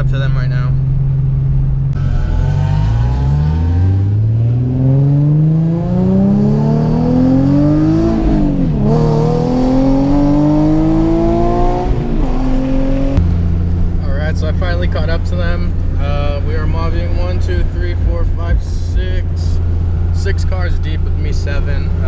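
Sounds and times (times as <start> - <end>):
car engine accelerating from inside: 1.9 - 14.0.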